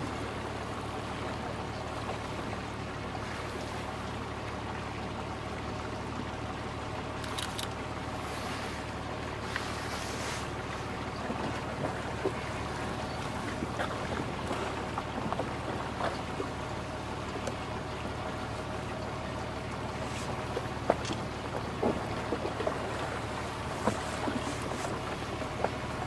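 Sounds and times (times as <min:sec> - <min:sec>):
boat engine running: 0:00.0 - 0:26.0
faint clicks and knocks: 0:20.2 - 0:25.8.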